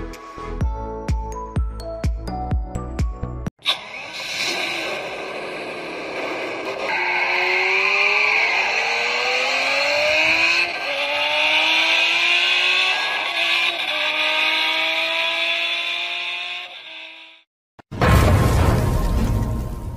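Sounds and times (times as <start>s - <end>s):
race car engine accelerating: 3.7s - 17.4s.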